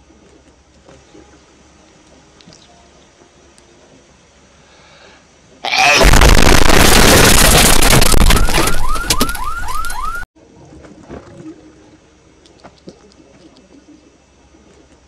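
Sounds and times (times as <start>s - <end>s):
distorted sound effect blast: 5.7s - 8.9s
rising siren-like chirps: 8.1s - 10.3s.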